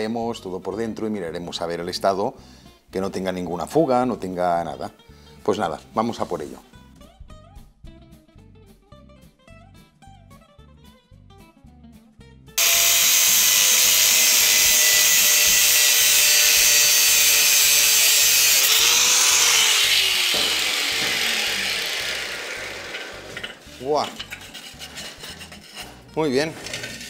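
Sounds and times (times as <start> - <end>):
angle grinder cutting steel: 12.6 - 25.8.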